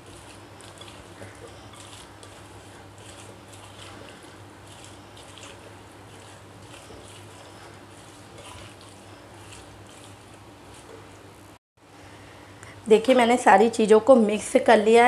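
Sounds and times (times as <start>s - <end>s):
spatula stirring wet food in bowl: 0.0s - 11.6s.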